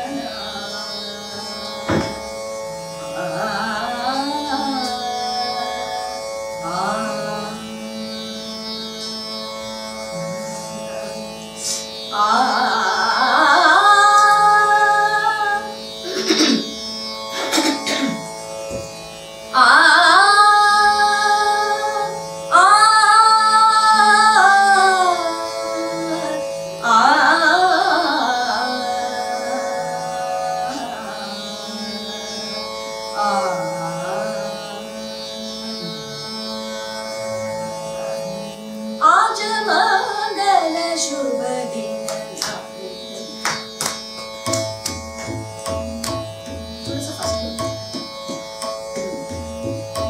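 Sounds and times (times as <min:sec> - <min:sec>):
electronic tanpura drone: 0:00.0 - 0:50.0
woman singing long held notes: 0:12.2 - 0:15.8.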